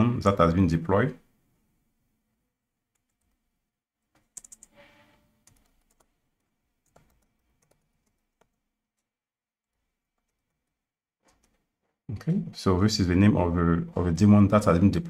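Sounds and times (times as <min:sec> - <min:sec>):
typing on computer keyboard: 0:04.2 - 0:04.8, 0:05.4 - 0:06.1, 0:06.8 - 0:09.1, 0:10.2 - 0:11.6.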